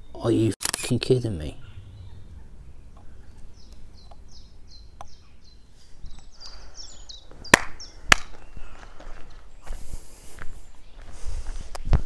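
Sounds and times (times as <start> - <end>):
small bird chirping: 1.2 - 9.7.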